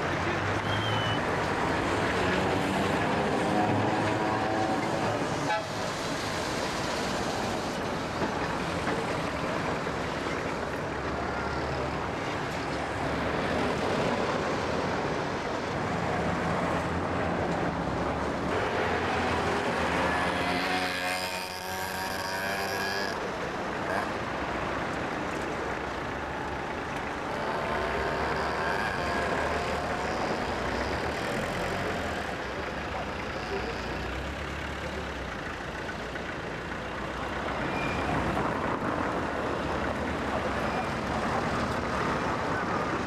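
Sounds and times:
street traffic: 0.0 - 43.0
tram passing: 0.0 - 43.0
moped engine passing: 18.8 - 24.1.

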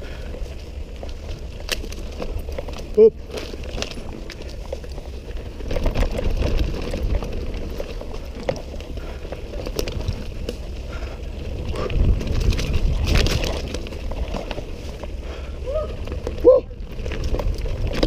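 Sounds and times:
bike clicking and rattling: 0.0 - 18.0
tyres crunching over dirt and stones: 0.0 - 18.0
wind rumbling on microphone: 0.0 - 18.0.

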